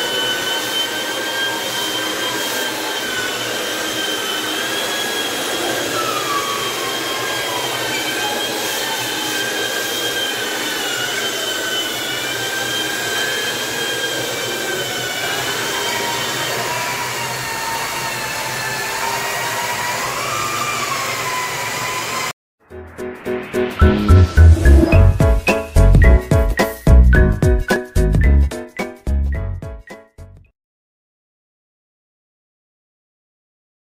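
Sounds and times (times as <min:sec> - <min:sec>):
electric sanders whirring: 0:00.0 - 0:22.3.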